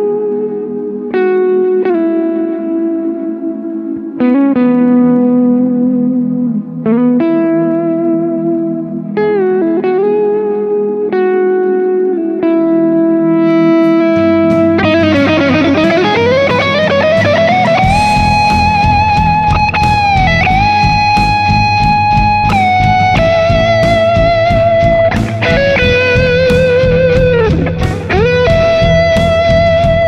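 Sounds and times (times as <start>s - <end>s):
electric guitar lead: 0.0s - 30.0s
drums: 13.8s - 30.0s
bass: 14.2s - 30.0s.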